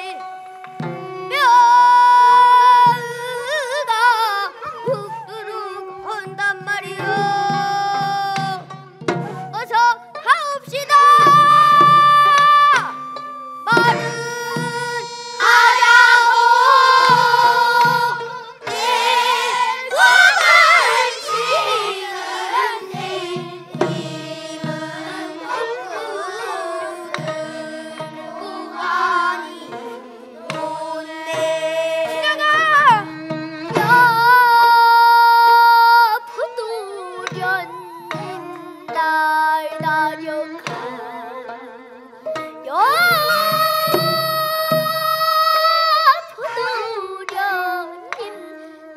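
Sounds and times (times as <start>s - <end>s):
child singing: 0.0s - 8.8s, 9.5s - 13.0s, 13.6s - 48.9s
traditional instrumental accompaniment: 0.0s - 48.9s
drum beats: 0.1s - 3.8s, 4.8s - 35.7s, 42.3s - 45.8s.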